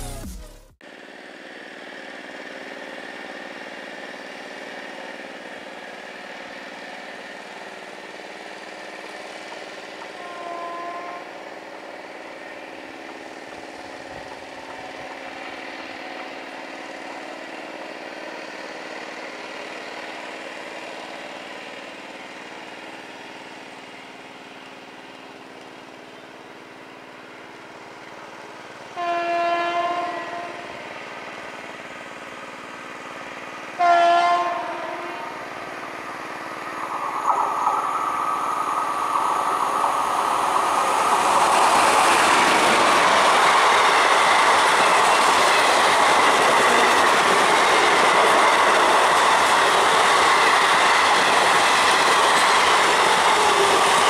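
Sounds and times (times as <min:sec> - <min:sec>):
locomotive running hum and rumble: 0:00.8 - 0:54.0
train horn: 0:10.0 - 0:11.4, 0:28.9 - 0:30.9, 0:33.8 - 0:35.6.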